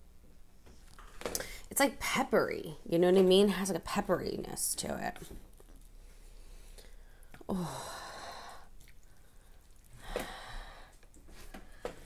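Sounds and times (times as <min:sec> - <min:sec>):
woman sighing: 0:07.4 - 0:08.7.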